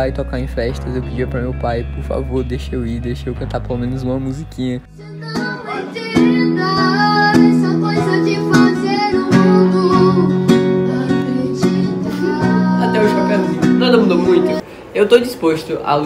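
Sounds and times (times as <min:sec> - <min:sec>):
boy singing: 0:04.9 - 0:14.6
classical guitar strumming: 0:05.0 - 0:14.6.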